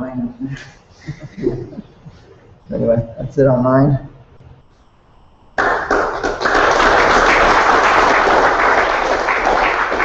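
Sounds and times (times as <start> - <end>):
audience applauding: 5.6 - 10.0.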